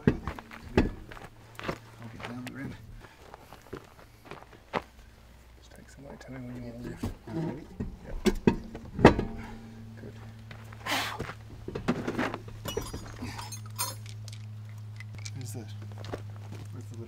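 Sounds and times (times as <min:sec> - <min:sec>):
steady low hum: 0:00.0 - 0:17.0
footsteps on gravel: 0:00.2 - 0:05.1, 0:10.2 - 0:12.5, 0:15.8 - 0:17.0
hand tools clinking: 0:12.6 - 0:15.7.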